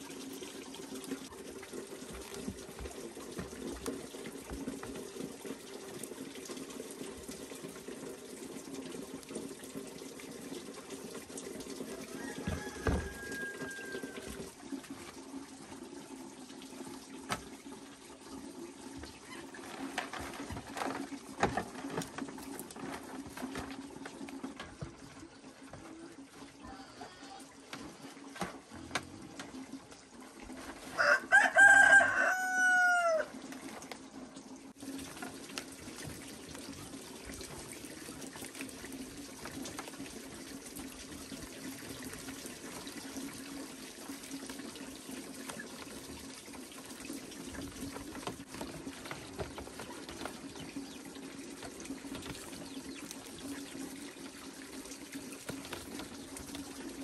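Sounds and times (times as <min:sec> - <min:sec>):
running water: 0:00.0 - 0:57.0
rooster crowing: 0:11.9 - 0:14.4, 0:31.0 - 0:33.4.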